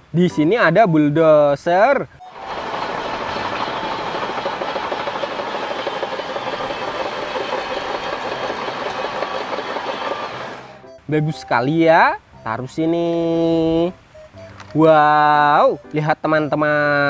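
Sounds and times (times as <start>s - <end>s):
bulldozer diesel engine: 2.2s - 10.9s
steel tracks clanking: 2.3s - 10.8s.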